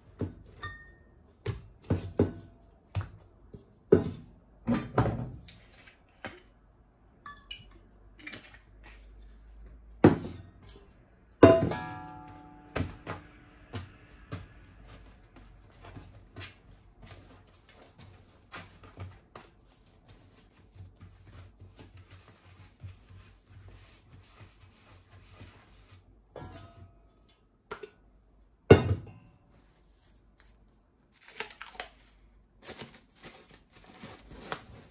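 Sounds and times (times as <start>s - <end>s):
dish knocked and ringing: 11.4s - 13.2s.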